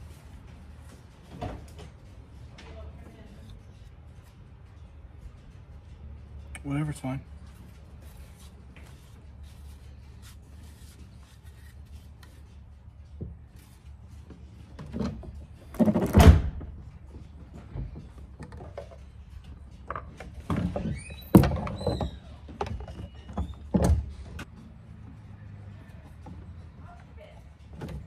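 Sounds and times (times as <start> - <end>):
knocks and clunks of handling: 14.3 - 24.5.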